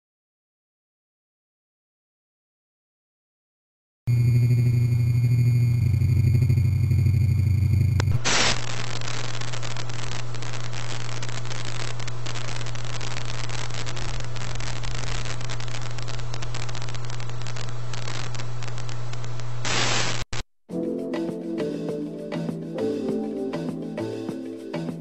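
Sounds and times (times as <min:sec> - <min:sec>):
constant low hum: 0:04.1 - 0:19.6
static hiss with crackle: 0:07.8 - 0:20.5.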